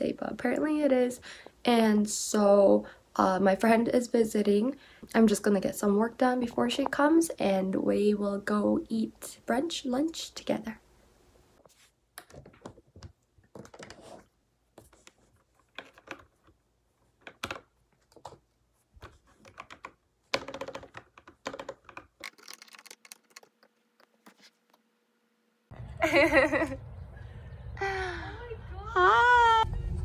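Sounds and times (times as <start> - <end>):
keyboard keys clicking: 19.4 - 23.7
low outdoor rumble: 25.7 - 30.0.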